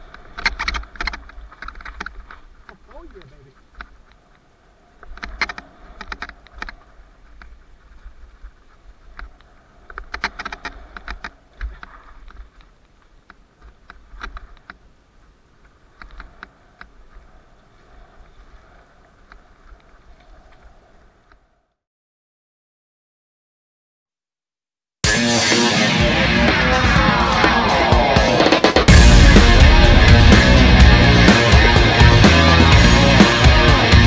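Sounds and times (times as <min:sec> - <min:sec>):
mountain bike rattling on dirt trail: 0:00.0 - 0:21.3.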